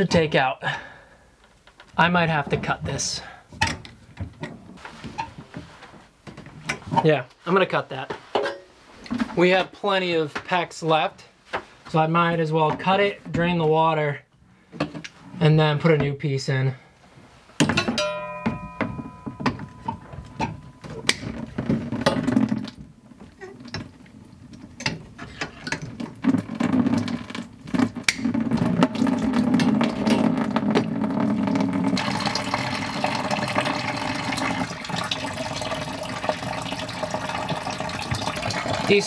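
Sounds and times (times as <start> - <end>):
water pouring into plastic bucket: 25.8 - 39.0.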